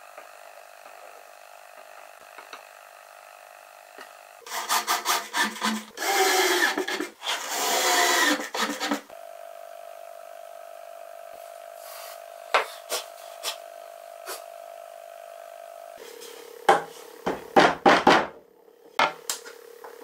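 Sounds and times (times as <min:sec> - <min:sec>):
cordless drill boring into wood: 0:04.4 - 0:09.2.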